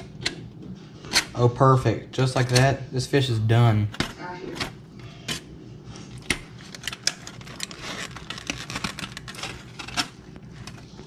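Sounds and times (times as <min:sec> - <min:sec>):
aluminium foil crinkling: 0:06.0 - 0:11.0.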